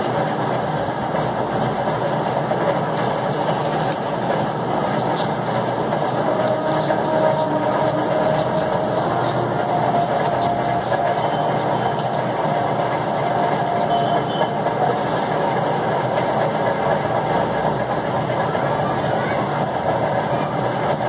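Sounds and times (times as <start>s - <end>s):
motor running: 3.3s - 15.8s.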